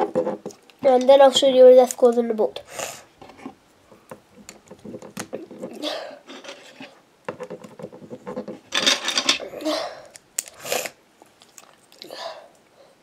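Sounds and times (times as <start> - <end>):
rustling scrape: 4.8 - 9.5.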